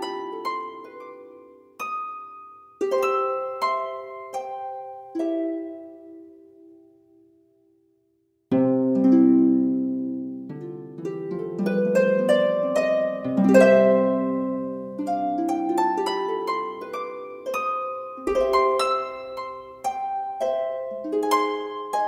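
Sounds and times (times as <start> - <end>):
slow plucked string melody: 8.5 - 22.0.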